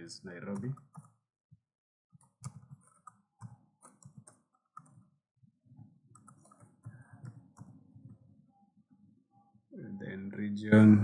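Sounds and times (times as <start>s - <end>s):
keyboard typing: 0.4s - 1.2s, 2.1s - 5.2s, 5.8s - 8.4s.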